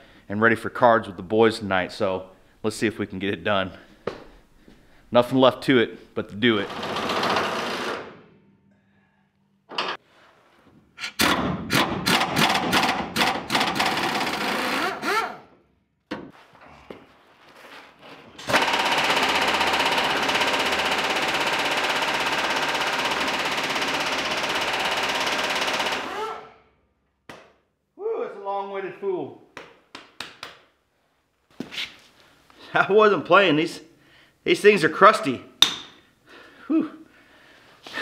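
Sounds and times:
pneumatic impact wrench hammering: 6.7s - 8.2s, 11.0s - 15.4s, 18.4s - 26.5s.

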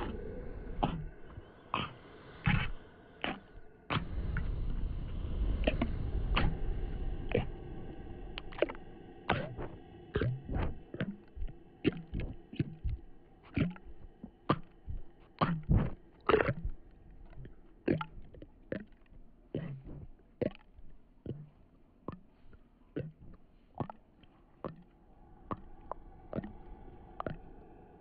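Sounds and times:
short low sounds: 0.0s - 18.4s
faint eerie drone: 0.0s - 28.0s.

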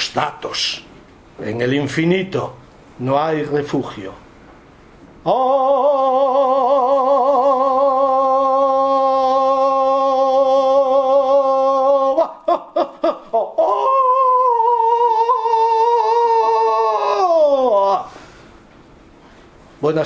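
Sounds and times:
person singing wordlessly: 5.2s - 12.5s.

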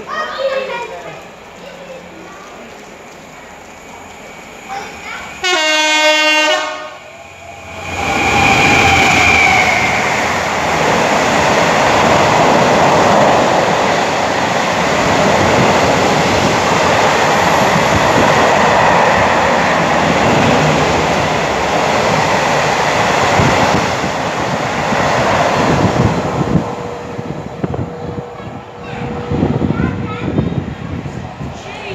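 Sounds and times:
freight train rumbling past: 0.0s - 31.9s
locomotive horn blast: 5.4s - 7.1s.

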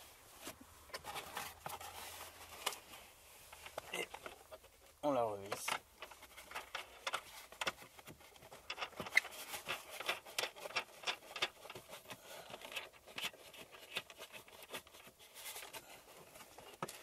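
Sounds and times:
wing nut clicking and scraping: 5.5s - 15.1s.

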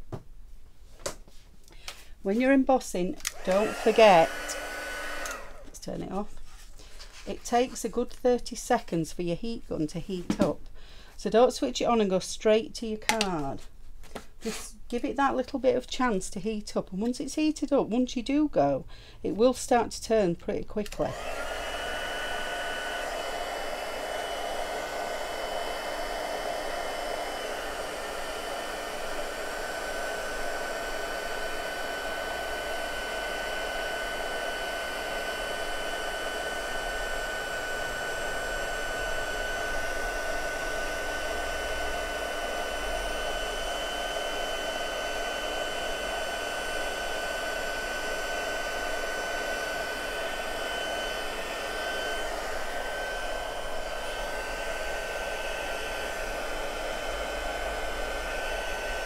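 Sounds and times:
heat gun fan blowing: 1.8s - 10.8s, 20.8s - 59.0s.

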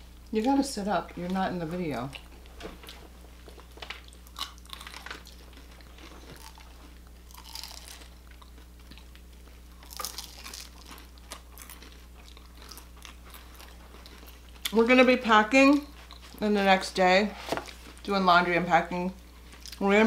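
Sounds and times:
faint low hum: 0.0s - 20.0s
people chewing crispy chicken: 2.1s - 14.8s.

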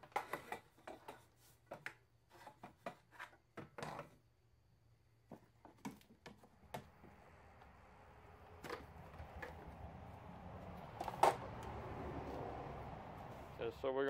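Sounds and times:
low rushing noise: 6.7s - 14.0s.

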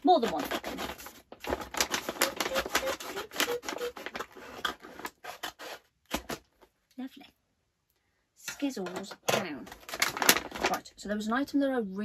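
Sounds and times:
paper bag crinkling: 0.3s - 6.4s, 9.7s - 10.9s.

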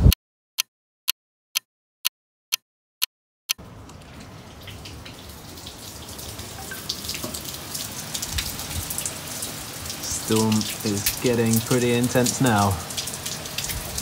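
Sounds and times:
heavy rain on roof tiles: 3.6s - 14.0s.

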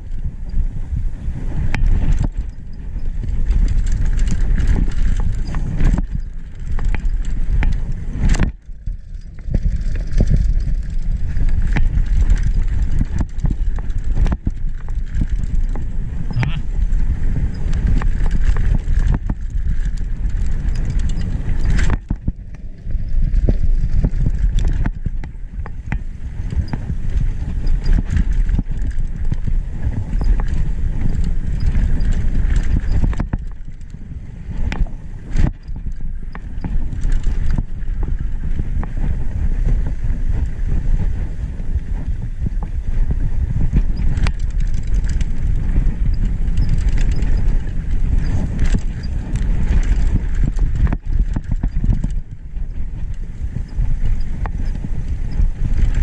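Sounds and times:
bike rattling and clicking: 0.0s - 56.0s
wind on microphone: 0.0s - 56.0s
tyres rumbling on dirt: 1.4s - 40.4s.

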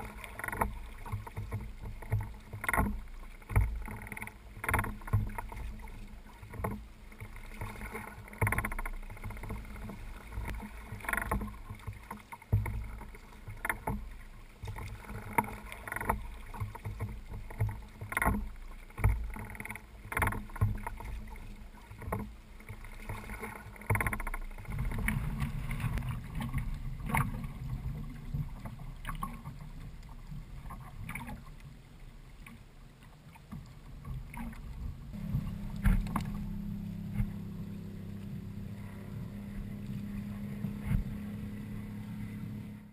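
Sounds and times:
water splashing against kayak hull: 0.0s - 42.9s
low rumble: 24.4s - 28.7s, 34.9s - 42.9s.

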